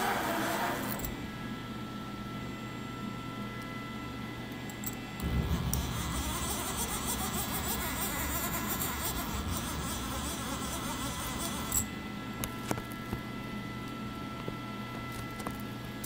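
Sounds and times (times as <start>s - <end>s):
motor buzzing: 0.0s - 1.1s, 5.2s - 11.9s.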